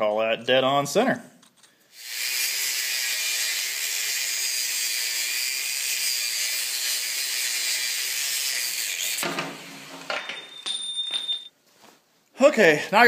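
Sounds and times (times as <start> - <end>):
angle grinder cutting metal: 2.0 - 10.1.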